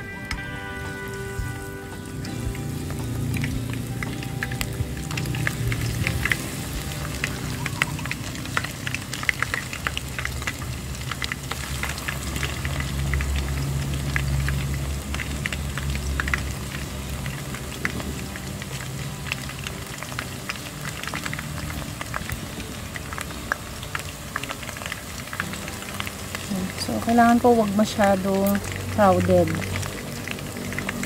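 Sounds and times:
food deep-frying in hot oil: 0.0 - 31.0.

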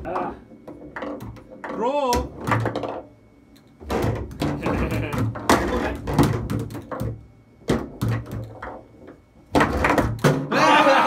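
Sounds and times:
foosball ball and rods clacking: 0.0 - 3.1, 3.7 - 10.5.

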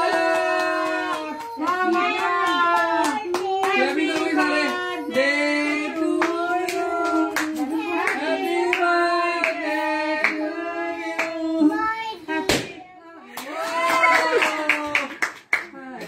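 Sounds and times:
people clapping along: 0.0 - 10.5, 13.3 - 16.0
group singing: 0.0 - 12.0.

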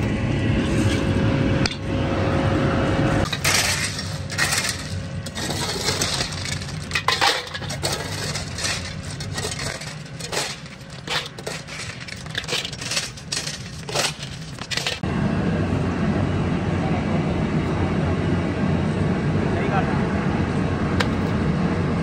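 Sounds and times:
low machine hum: 0.0 - 22.0
rumbling machine noise: 0.0 - 22.0
metal tools clinking and scraping: 3.2 - 15.0.

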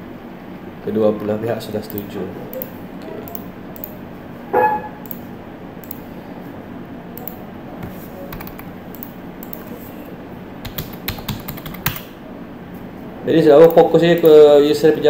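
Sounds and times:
mouse clicks: 5.8 - 6.0, 7.2 - 7.4, 8.4 - 9.8
keyboard keystrokes: 7.2 - 9.7, 10.6 - 12.1.

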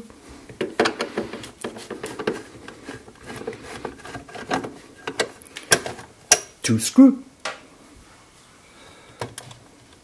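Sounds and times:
screwdriver clicking and scraping: 0.6 - 6.0.

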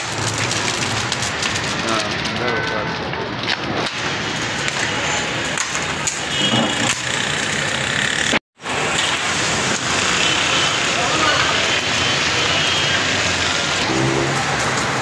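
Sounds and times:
hot oil sizzling in a pot: 0.0 - 15.0.

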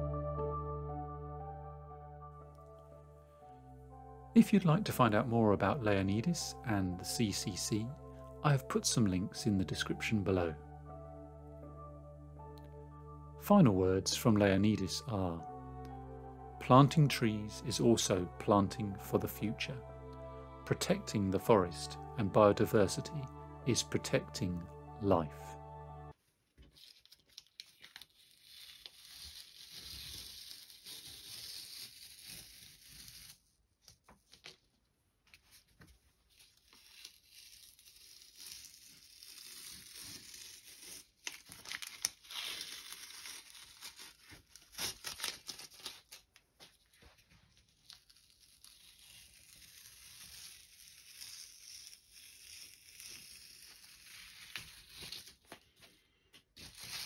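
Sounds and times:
tape crinkling: 26.4 - 55.8, 56.6 - 57.0
masking tape peeling: 26.7 - 33.5, 36.3 - 46.4, 47.5 - 55.4, 56.6 - 57.0.

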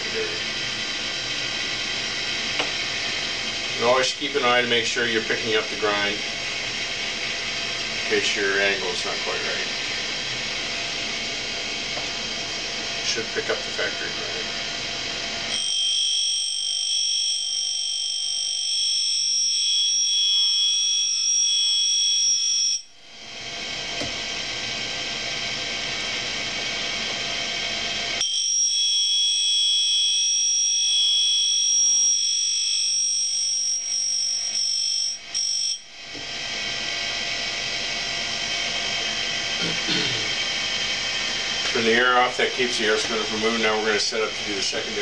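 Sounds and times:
grinding wheel whine: 0.0 - 45.0
motor running: 36.1 - 45.0.

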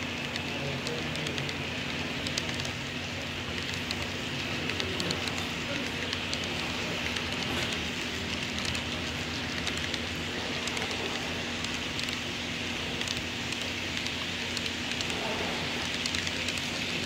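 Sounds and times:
faint steady hum: 0.0 - 17.0
model train wheels rattling: 0.0 - 17.0
faint clicks: 13.0 - 16.7.

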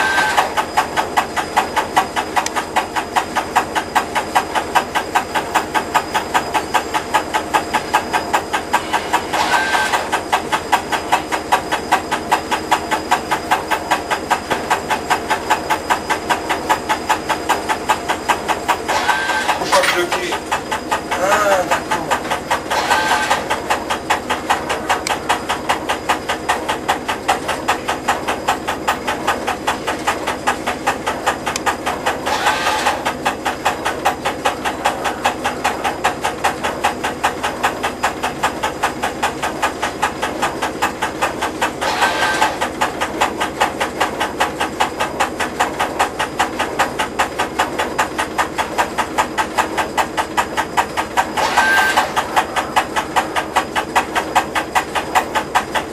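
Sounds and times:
engine idling: 0.0 - 55.9.

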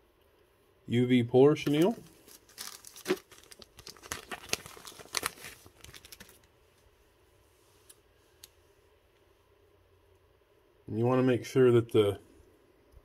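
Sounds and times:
material crinkling and rustling: 1.5 - 7.0.

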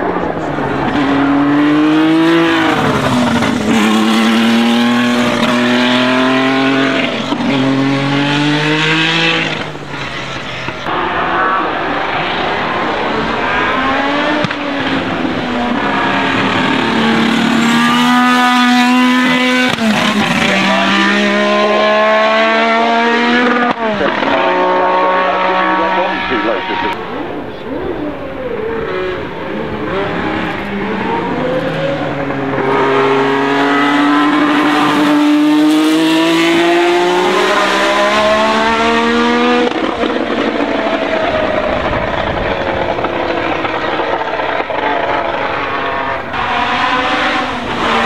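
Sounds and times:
racing engine accelerating: 0.0 - 48.0.

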